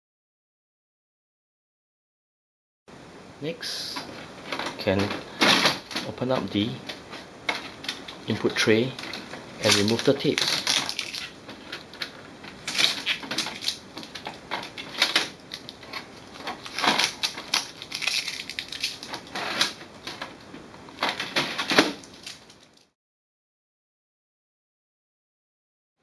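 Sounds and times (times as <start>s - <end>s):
packing tape peeling off plastic: 9.0s - 20.3s, 21.0s - 22.9s.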